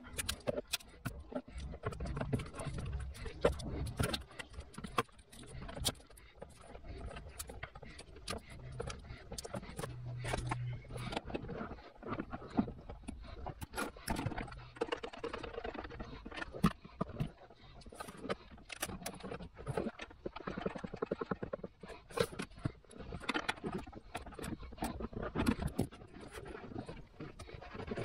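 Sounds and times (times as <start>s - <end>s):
cables and plastic trim clicking: 0.0s - 11.6s.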